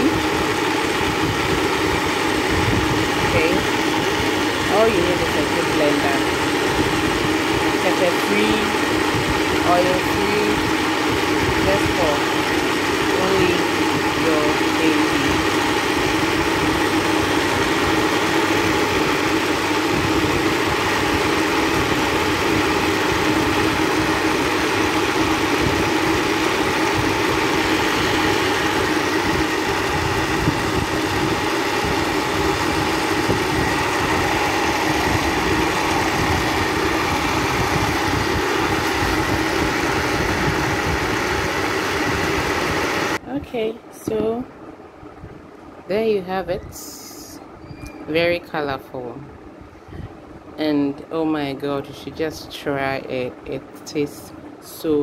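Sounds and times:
blender motor whirring: 0.0s - 43.2s.

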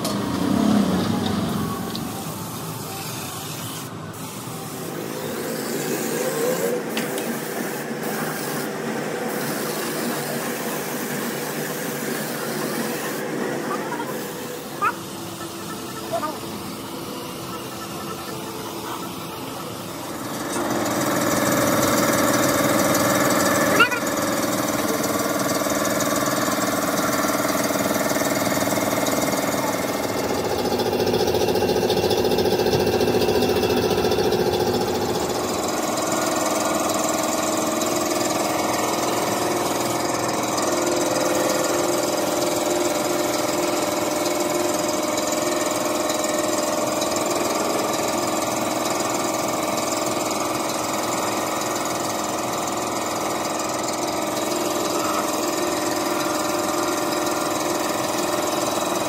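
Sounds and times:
air compressor running: 0.0s - 59.0s
spray gun air hiss: 2.0s - 17.8s.

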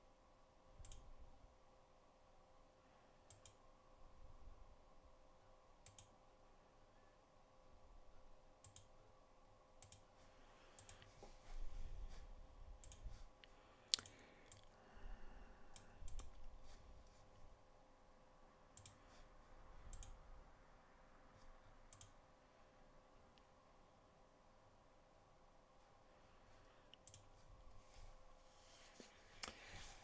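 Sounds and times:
faint steady hum: 0.0s - 30.0s
computer mouse clicking: 0.8s - 1.1s, 3.2s - 3.6s, 5.8s - 6.2s, 8.6s - 9.0s, 9.8s - 11.1s, 12.8s - 14.8s, 15.7s - 16.6s, 18.7s - 19.1s, 19.8s - 20.2s, 21.9s - 22.2s, 26.9s - 27.4s.

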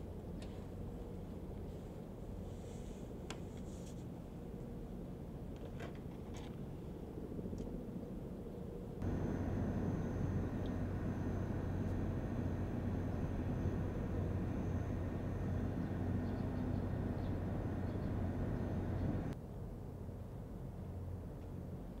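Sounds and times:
engine humming: 9.0s - 19.4s
faint high whine: 9.0s - 19.4s.

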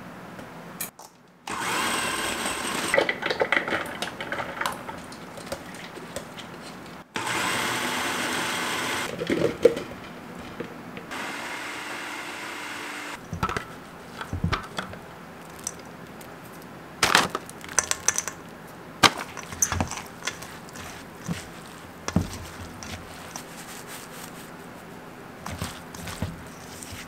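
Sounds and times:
food processor motor: 1.5s - 3.1s, 7.2s - 9.1s, 11.1s - 13.2s
spatula scraping metal bowl: 19.3s - 24.3s, 25.4s - 27.0s.

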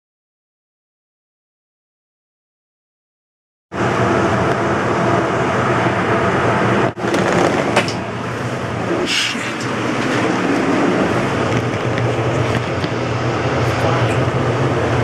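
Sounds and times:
loud mechanical hum: 3.8s - 15.0s.

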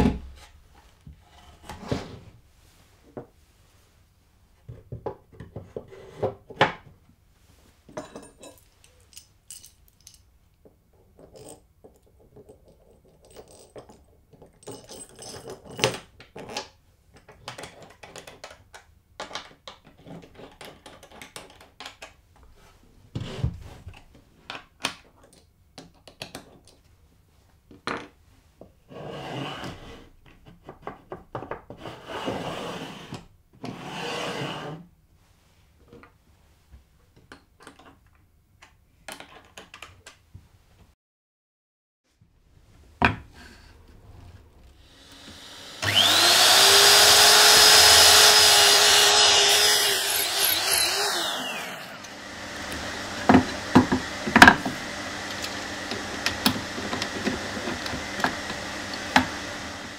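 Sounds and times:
wooden block sliding and scraping: 0.3s - 3.4s, 5.5s - 6.4s, 31.7s - 34.8s
metal hardware clinking: 8.0s - 10.3s.

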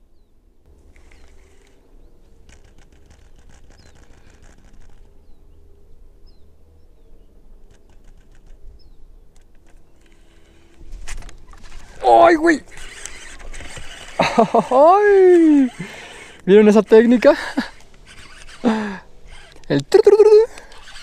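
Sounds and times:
fishing reel clicking: 11.6s - 21.0s.

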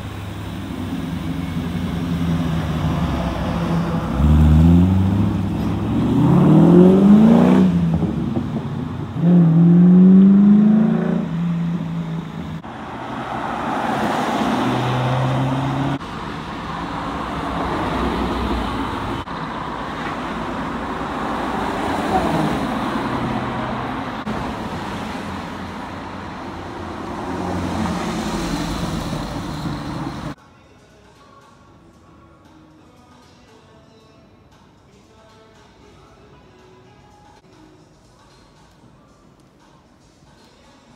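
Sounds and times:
sports car pulling away: 0.0s - 19.1s
sports cars passing: 0.0s - 30.4s
engine revving hard: 2.2s - 16.0s.

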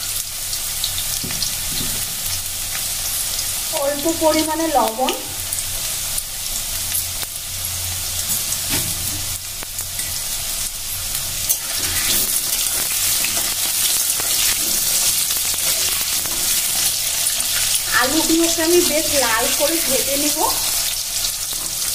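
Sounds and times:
potatoes sizzling in hot oil: 0.0s - 21.9s.

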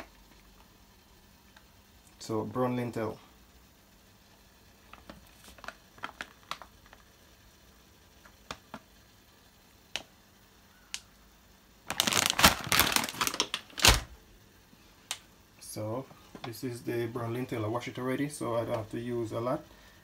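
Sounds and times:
plastic bag crinkling: 4.8s - 7.1s, 11.8s - 14.2s.

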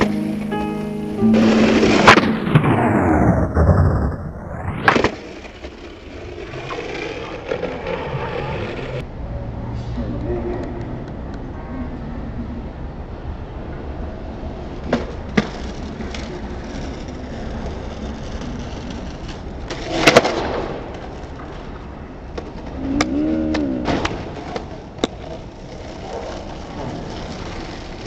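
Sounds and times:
skateboard sliding along ledge: 0.0s - 9.1s, 14.4s - 28.0s
skateboard wheels rolling on concrete: 0.0s - 9.2s, 10.6s - 28.0s
skateboard clacking: 14.7s - 28.0s.

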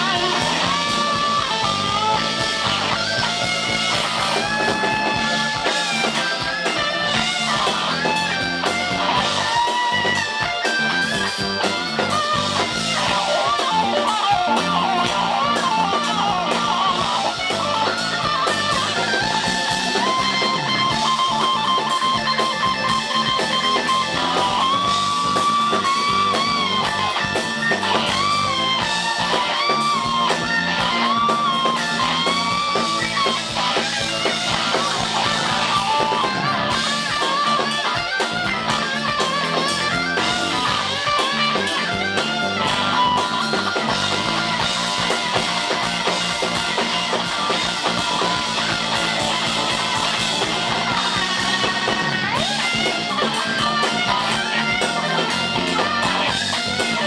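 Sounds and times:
electric guitar lead: 0.0s - 57.0s
rock band with drums: 0.0s - 57.0s.

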